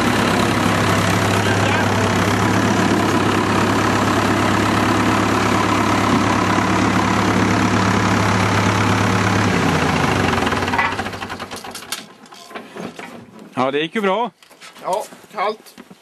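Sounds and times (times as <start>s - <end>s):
tractor engine idling: 0.0s - 12.2s.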